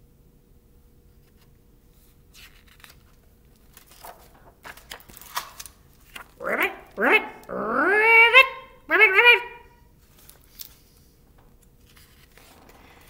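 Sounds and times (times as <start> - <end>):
faint steady hum: 0.0 - 13.0
paper rustling: 1.2 - 6.4, 10.0 - 13.0.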